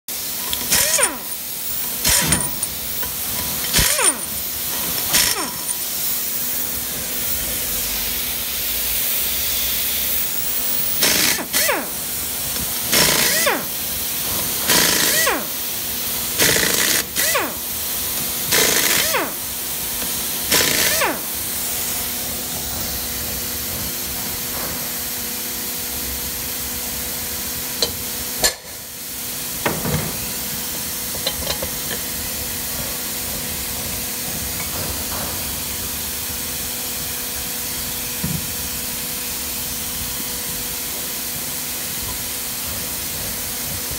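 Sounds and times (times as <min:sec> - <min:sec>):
air impact wrench bursts: 0:00.1 - 0:23.2.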